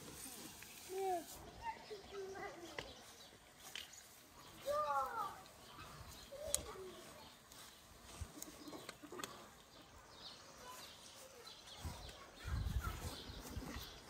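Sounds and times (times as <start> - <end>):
birds calling faintly: 0.0 - 14.0
faint clicks: 6.4 - 6.7.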